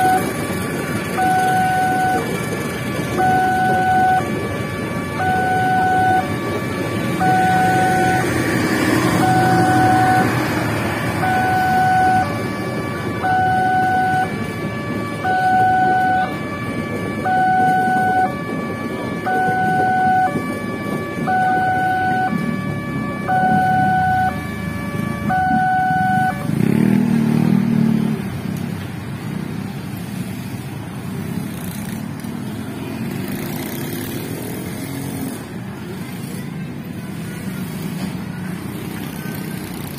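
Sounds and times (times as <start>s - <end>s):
level crossing two-tone alarm: 0.0s - 26.5s
motorcycle engines revving: 0.0s - 39.9s
train passing rumble: 0.0s - 39.9s.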